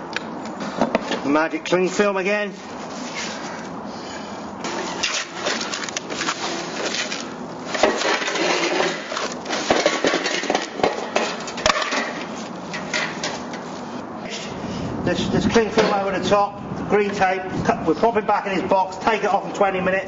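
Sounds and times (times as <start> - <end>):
tape being pulled: 4.6 - 9.8
cling film crinkling: 5.0 - 9.8.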